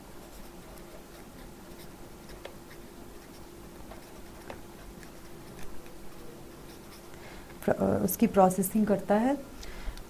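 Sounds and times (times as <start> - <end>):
faint steady hum: 0.0 - 10.0
pencil writing on paper: 0.2 - 7.1.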